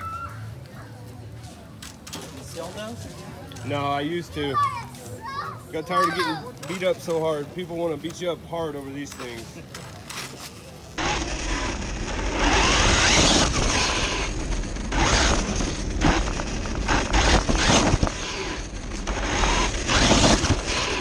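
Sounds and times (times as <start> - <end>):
toy truck tyre and drivetrain noise: 9.0 - 21.0.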